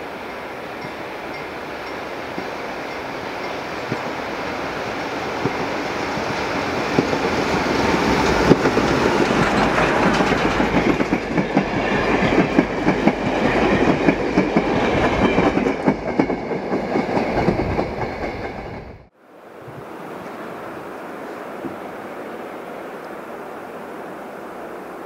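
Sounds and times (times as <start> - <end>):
steam train passing: 0.0 - 25.0
wheels clacking over rail joints: 5.2 - 18.6.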